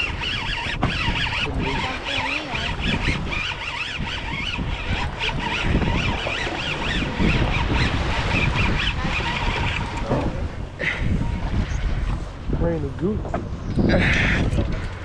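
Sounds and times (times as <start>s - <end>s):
boat at sea: 0.0s - 15.0s
wind rumbling on microphone: 0.0s - 15.0s.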